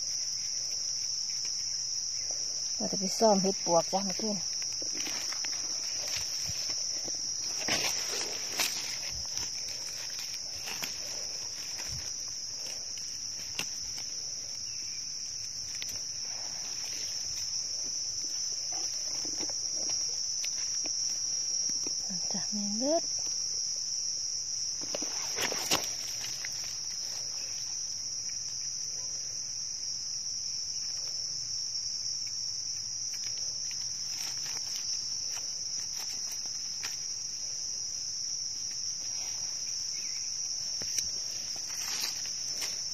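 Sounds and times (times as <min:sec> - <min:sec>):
insects droning: 0:00.0 - 0:42.9
footsteps on dry leaves: 0:04.6 - 0:21.0, 0:39.0 - 0:42.9.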